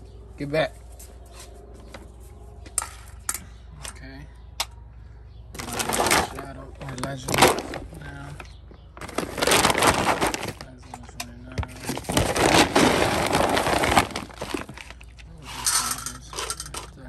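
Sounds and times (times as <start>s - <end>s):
kibble rattling: 5.6s - 8.0s, 11.8s - 17.0s
plastic bag rustling: 5.6s - 8.4s, 9.0s - 10.8s, 11.6s - 15.6s.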